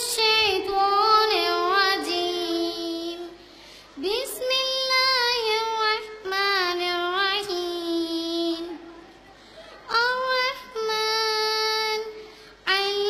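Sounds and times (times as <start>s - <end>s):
girl chanting a recitation: 0.0s - 9.0s, 9.9s - 13.0s.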